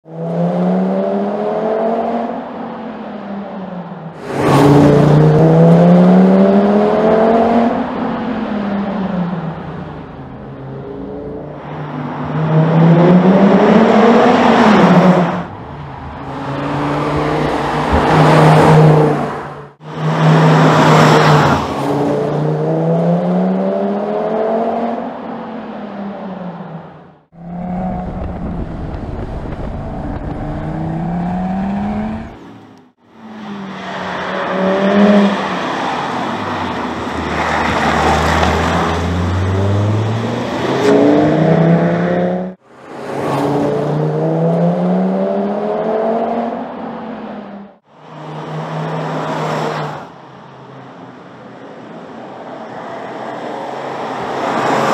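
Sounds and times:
car engine accelerating: 27.2s - 46.7s.

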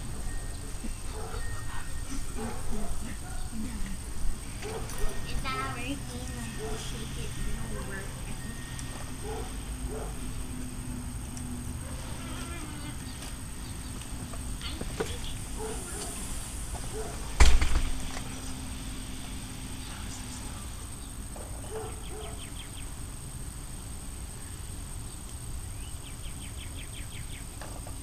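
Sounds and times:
outdoor background noise: 0.0s - 28.0s
sharp thump: 17.4s - 18.0s.

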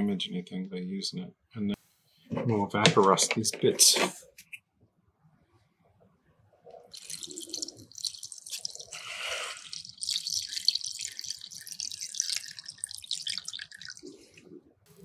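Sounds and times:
liquid pouring into container: 6.8s - 14.5s.

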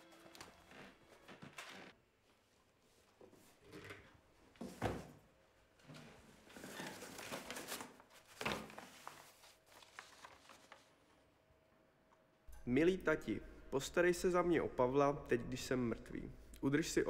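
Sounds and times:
cardboard and cloth rustling: 6.4s - 11.0s.

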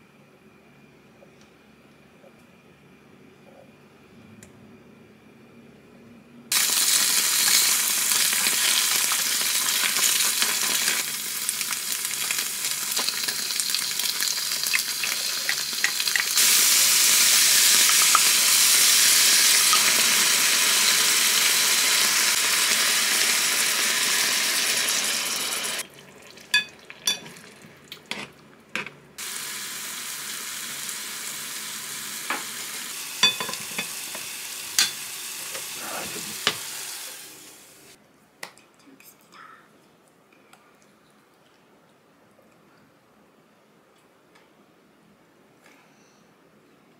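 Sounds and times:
food sizzling in a pan: 6.5s - 27.6s, 29.2s - 38.0s.

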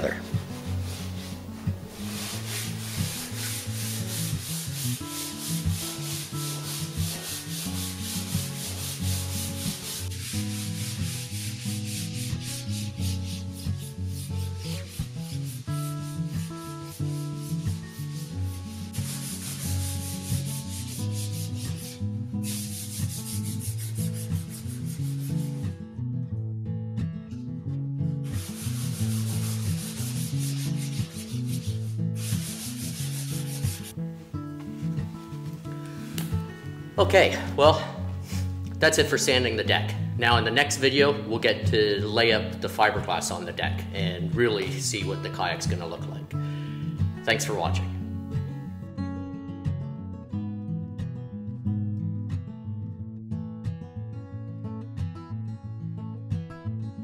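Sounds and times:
background music: 0.0s - 52.8s
sandpaper rasping on wood: 0.4s - 25.6s, 28.3s - 33.9s.

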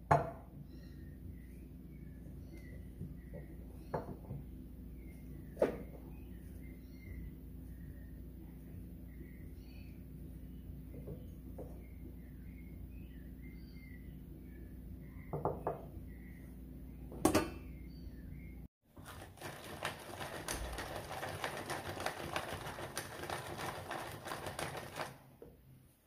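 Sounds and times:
birds chirping: 0.6s - 18.7s
nut chopper crunching walnuts: 19.0s - 25.2s.

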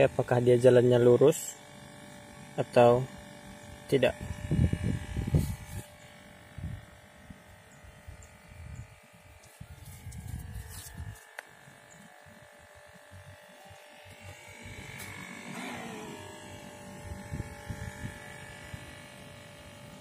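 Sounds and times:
small electric motor whining: 0.0s - 20.0s
wind gusts on microphone: 4.2s - 5.8s.

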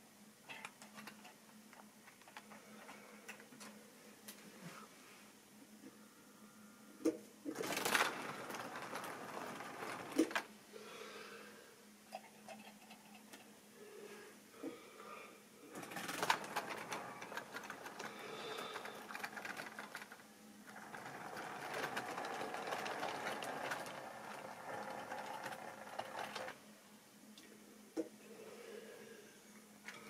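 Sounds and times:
model train whirring rattle: 7.5s - 10.5s, 15.7s - 26.6s
wheels clicking on rails: 7.5s - 10.5s, 15.7s - 26.6s.

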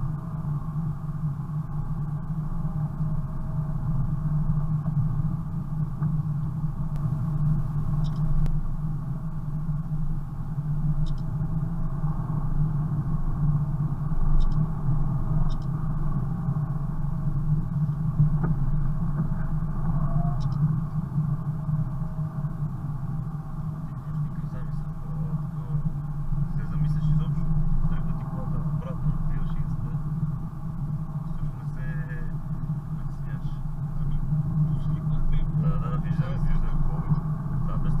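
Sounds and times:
car engine and road drone: 0.0s - 38.0s
faint ticks: 8.0s - 8.6s, 11.0s - 11.3s, 14.4s - 14.7s, 15.4s - 15.8s, 20.3s - 20.7s.

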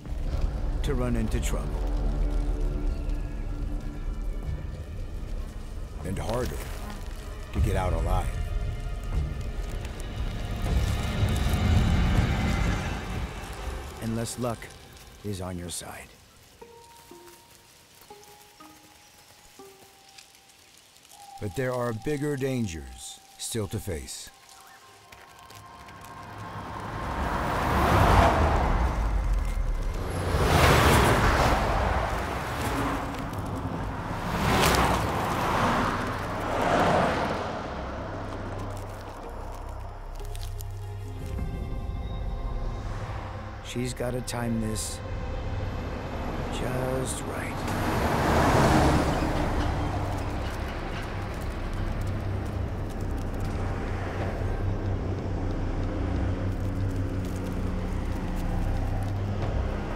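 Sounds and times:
cars driving past: 25.7s - 40.1s, 44.8s - 59.9s.

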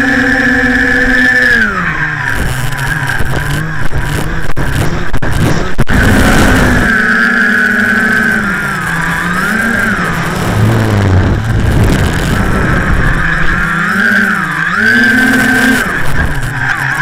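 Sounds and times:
drone motors whining: 0.0s - 17.0s
rushing air: 10.0s - 13.6s.

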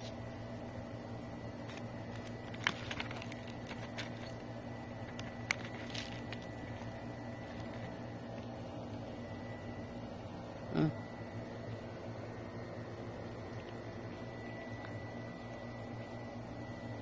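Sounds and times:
faint high whine: 0.0s - 17.0s
low hum: 0.0s - 17.0s.

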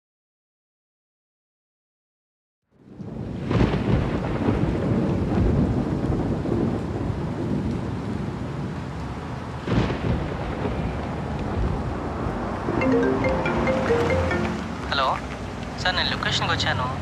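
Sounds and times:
steady rain: 2.8s - 17.0s
thunder claps: 2.9s - 8.4s, 9.6s - 12.8s.

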